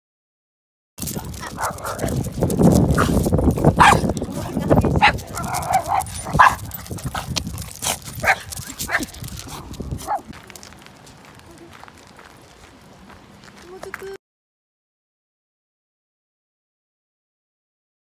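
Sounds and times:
small dog barking: 0:01.1 - 0:02.2, 0:03.7 - 0:04.2, 0:05.0 - 0:10.3.

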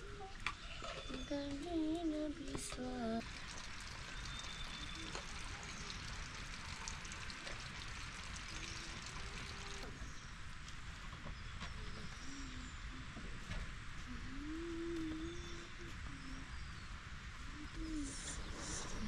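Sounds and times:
running water rushing hiss: 0:02.7 - 0:10.1, 0:18.0 - 0:19.0.

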